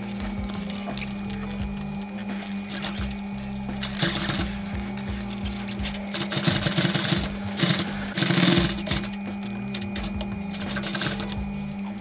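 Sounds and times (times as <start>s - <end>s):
sewing machine stitching: 3.8s - 4.6s, 6.0s - 9.1s, 10.6s - 11.4s.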